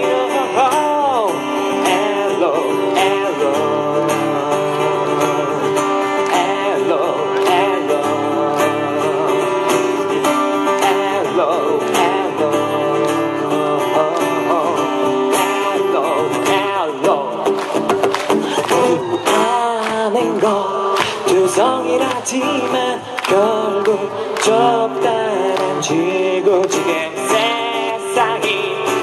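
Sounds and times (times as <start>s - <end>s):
acoustic guitar strumming: 0.0s - 29.0s
bending lead melody: 24.4s - 26.4s.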